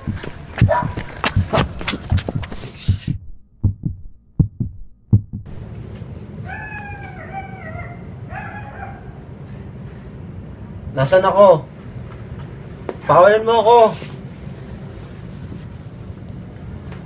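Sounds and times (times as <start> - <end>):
heavy low heartbeat thumps: 0.0 - 5.6
short high wavering cries: 6.4 - 9.6
steady hiss: 9.2 - 17.0.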